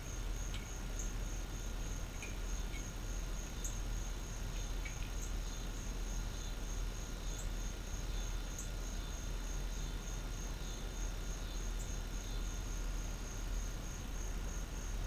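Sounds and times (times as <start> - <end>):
crickets trilling: 0.0 - 15.0
faint ticks: 0.2 - 1.2, 2.1 - 3.0, 4.6 - 5.3.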